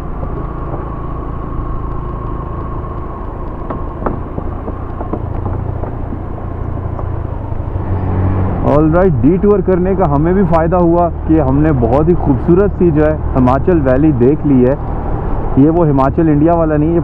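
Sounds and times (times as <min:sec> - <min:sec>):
motorcycle engine running: 0:00.0 - 0:08.0.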